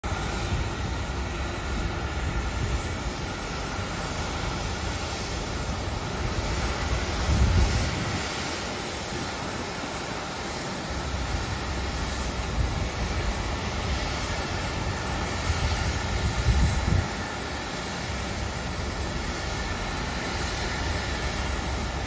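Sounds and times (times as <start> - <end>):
jet airliner running: 0.0 - 22.0
wind on microphone: 4.4 - 9.6, 11.4 - 17.5.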